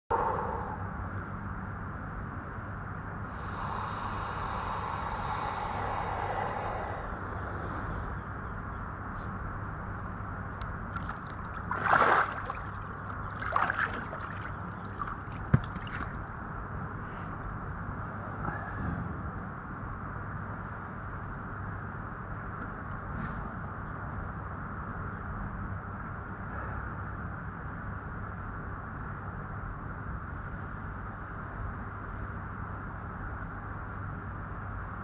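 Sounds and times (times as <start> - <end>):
faint bird chirps: 0.1 - 2.3
steady low hum: 0.1 - 19.8
man breathing in deeply: 3.2 - 8.4
water sloshing and splashing: 10.8 - 16.4.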